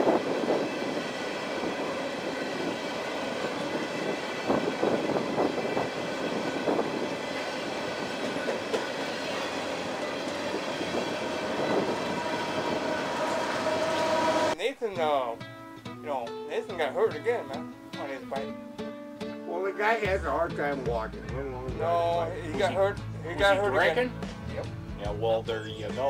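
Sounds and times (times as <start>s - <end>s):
train wheels rumbling on rail: 0.0s - 14.6s
wheels clacking on rail joints: 0.0s - 14.6s.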